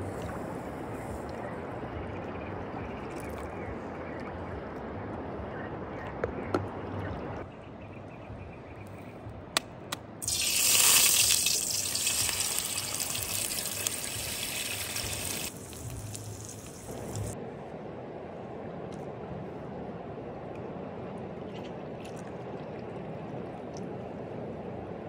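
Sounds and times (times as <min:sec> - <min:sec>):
eggs sizzling in a pan: 0:10.2 - 0:17.4.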